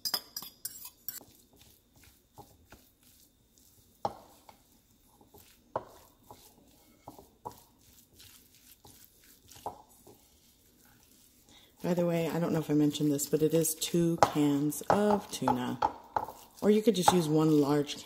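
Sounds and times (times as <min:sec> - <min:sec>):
fork scraping ceramic bowl: 0:00.0 - 0:03.7, 0:05.3 - 0:11.4
wooden spoon stirring: 0:00.0 - 0:18.0.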